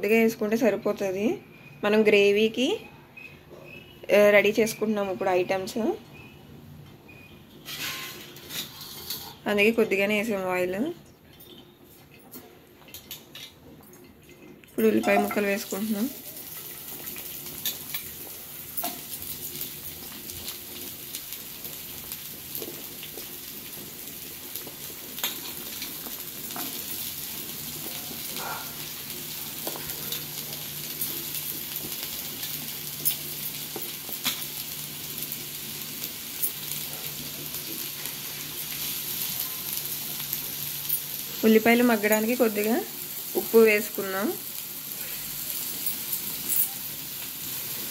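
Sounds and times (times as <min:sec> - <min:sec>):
onions sizzling in oil: 0:04.1 - 0:06.3, 0:14.8 - 0:47.9.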